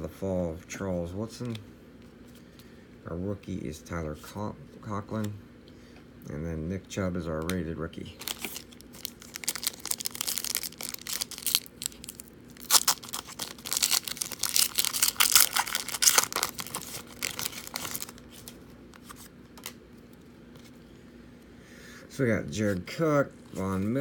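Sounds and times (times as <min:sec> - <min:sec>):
foil pack tearing and crinkling: 0:08.2 - 0:19.8.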